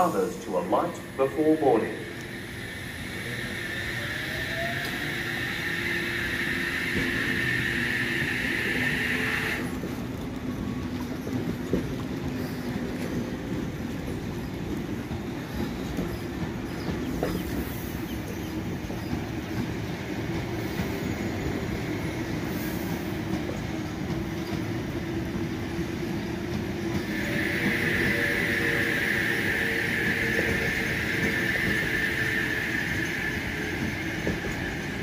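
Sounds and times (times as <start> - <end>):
electric train running past: 0.0 - 35.0.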